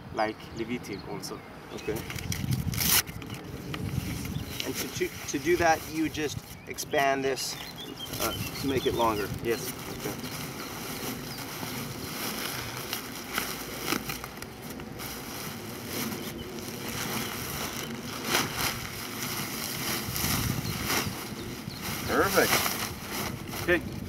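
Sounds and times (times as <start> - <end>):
sharp fabric crinkles: 8.0 - 24.0
nylon fabric rustling: 8.2 - 24.0.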